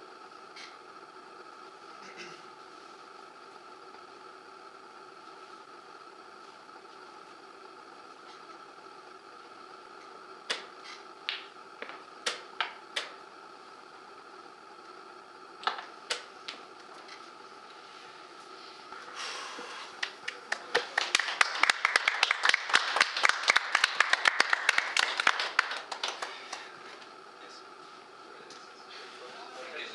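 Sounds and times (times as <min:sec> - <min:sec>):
small group applauding: 0:20.0 - 0:26.8.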